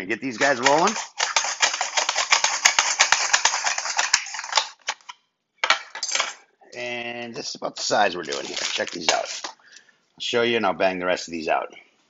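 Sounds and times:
potato cut on mandoline rattling: 0:00.4 - 0:04.6.

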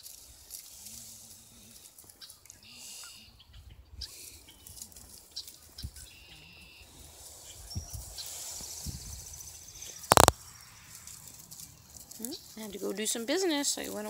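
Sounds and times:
small clicks: 0:10.1 - 0:10.3.

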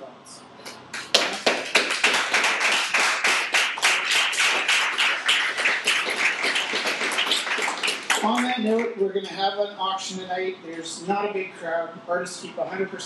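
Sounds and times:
audience applause: 0:00.9 - 0:08.9.

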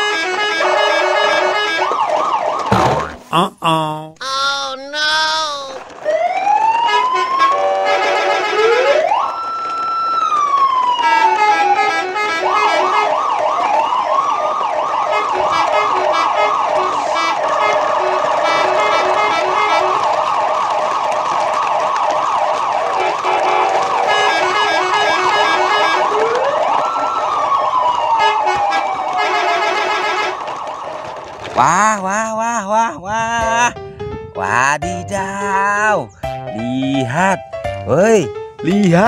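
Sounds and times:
siren slow wail: 0:00.3 - 0:02.7, 0:06.0 - 0:31.4
electronic siren yelping: 0:24.7 - 0:30.4.

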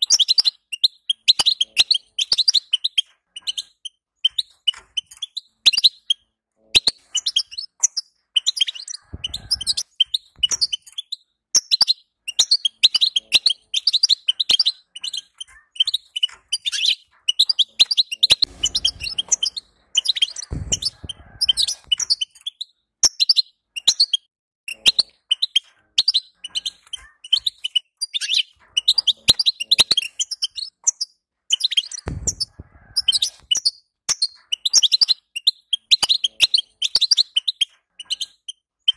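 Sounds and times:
low thumps: 0:18.4 - 0:22.0, 0:32.1 - 0:33.1.

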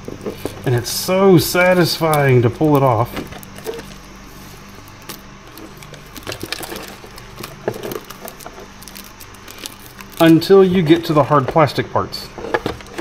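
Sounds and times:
plastic film peeling: 0:00.0 - 0:13.0.

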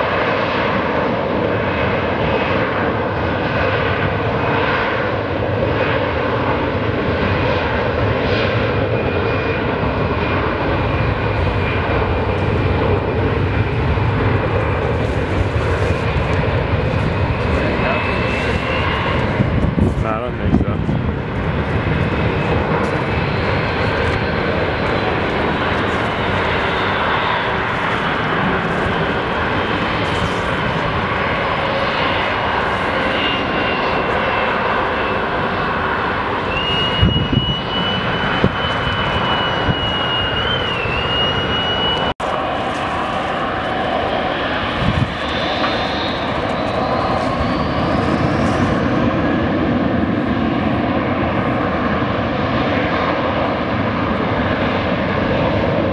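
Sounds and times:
jet engine roar with whine: 0:00.0 - 0:55.9
engine whine rising in pitch: 0:10.8 - 0:51.8.

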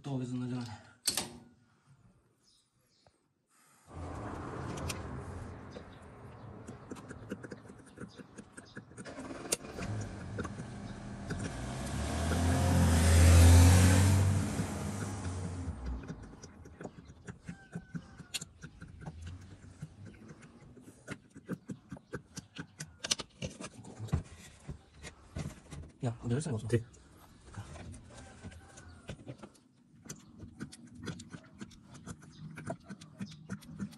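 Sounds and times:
vehicle engine running: 0:03.9 - 0:07.7, 0:08.4 - 0:16.5.

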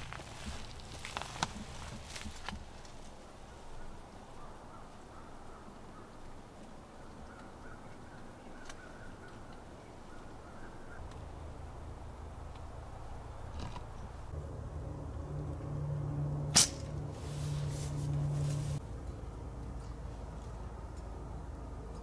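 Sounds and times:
distant bird calls: 0:03.1 - 0:14.3
low hum: 0:09.6 - 0:22.0.

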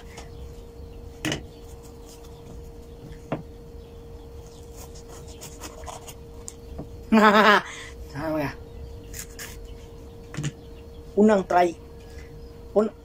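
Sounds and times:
steady low hum: 0:00.0 - 0:13.0
knife slicing and scraping: 0:04.6 - 0:06.2, 0:09.1 - 0:09.7.

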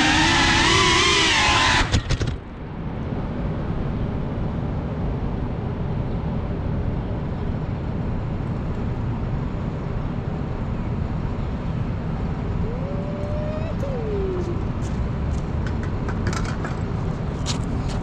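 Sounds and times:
drone motors whining: 0:00.0 - 0:02.4
low outdoor rumble: 0:00.0 - 0:18.0.

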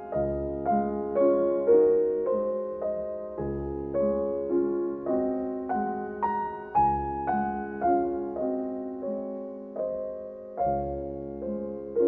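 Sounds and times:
slow solo piano: 0:00.0 - 0:12.0.

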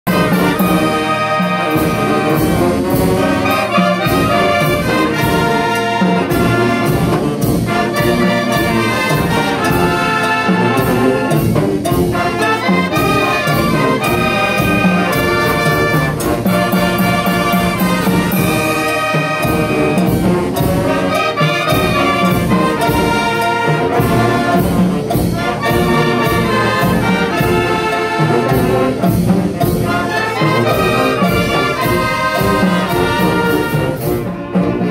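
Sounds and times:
brass band playing: 0:00.0 - 0:34.9.

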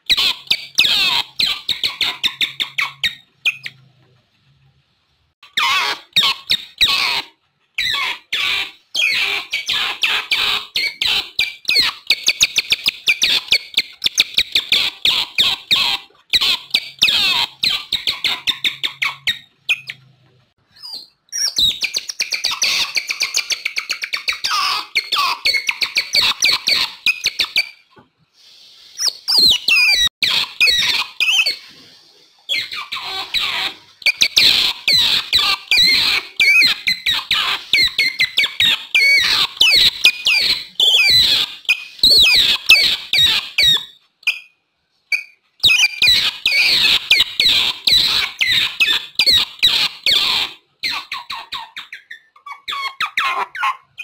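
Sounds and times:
otters chirping and squeaking: 0:00.0 - 0:04.3, 0:05.3 - 0:28.0, 0:28.9 - 0:54.0.

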